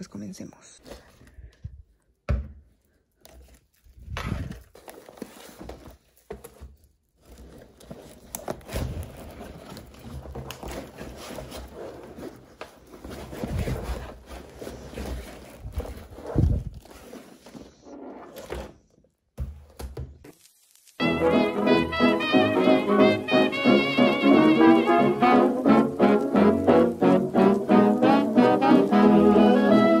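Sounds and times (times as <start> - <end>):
fabric rustling: 7.0 - 18.4.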